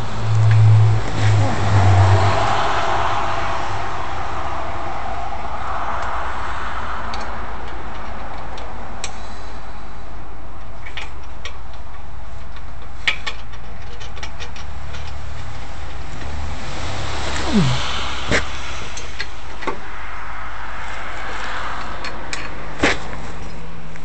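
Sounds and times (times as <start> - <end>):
steady low hum: 16.0 - 19.6.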